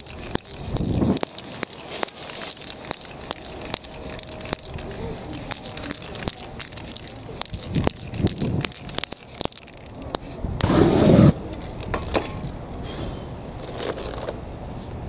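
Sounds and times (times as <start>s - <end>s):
sharp clicks and taps: 0.0s - 10.2s.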